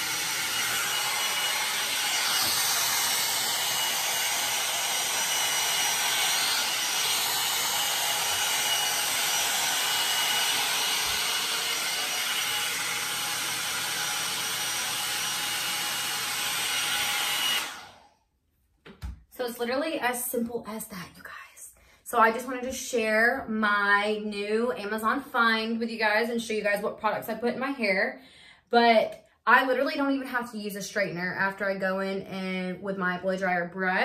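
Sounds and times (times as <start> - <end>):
blow dryer brush rushing air: 0.0 - 18.1.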